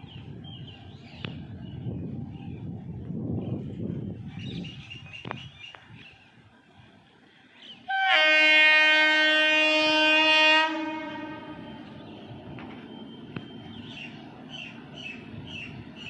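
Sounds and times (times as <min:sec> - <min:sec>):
locomotive horn blast: 0:07.9 - 0:12.2.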